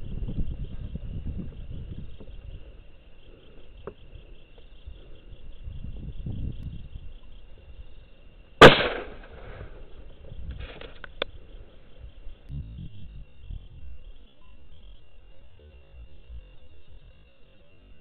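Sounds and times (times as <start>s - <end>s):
insects chirping trill: 0.0s - 18.0s
rifle shot: 8.6s - 9.8s.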